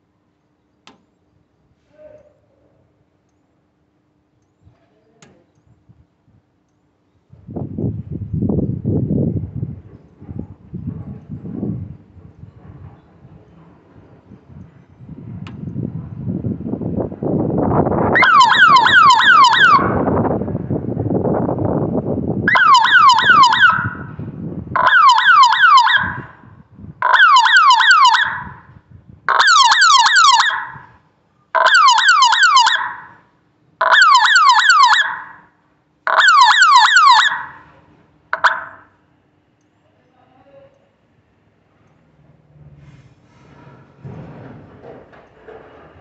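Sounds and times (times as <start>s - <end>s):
low rumble: 7.3s - 19.1s, 19.8s - 24.8s
alarm siren falling whoops: 17.8s - 20.4s, 22.4s - 31.0s, 31.6s - 33.2s, 33.8s - 35.5s, 36.1s - 37.7s, 38.4s - 38.9s.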